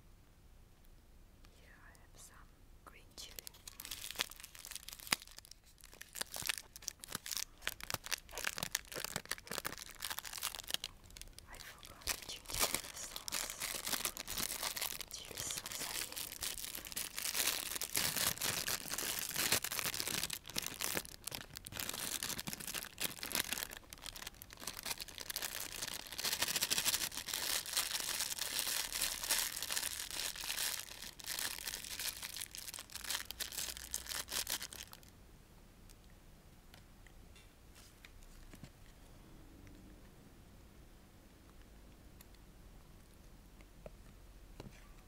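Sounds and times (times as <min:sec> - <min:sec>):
plastic packaging crinkling: 0:03.2 - 0:35.1
plastic tearing: 0:03.4 - 0:35.0.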